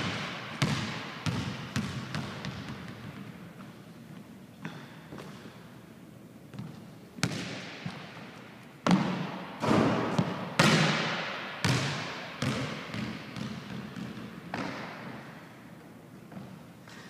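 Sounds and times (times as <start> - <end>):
basketball bouncing on wooden floor: 0.0 - 3.7, 6.5 - 8.0, 8.8 - 15.1.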